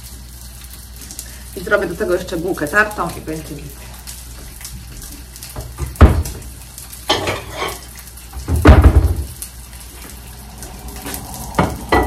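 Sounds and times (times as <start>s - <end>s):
dishes clattering: 7.1s - 7.9s, 11.6s - 12.0s.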